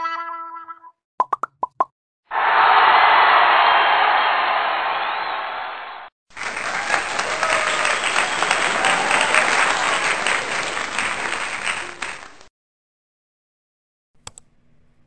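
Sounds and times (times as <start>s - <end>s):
crowd clapping: 2.3s - 12.5s.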